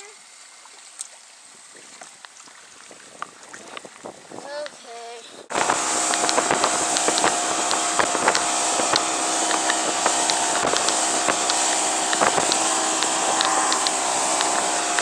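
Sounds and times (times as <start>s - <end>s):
motorboat engine: 0.0s - 15.0s
rushing water: 0.0s - 15.0s.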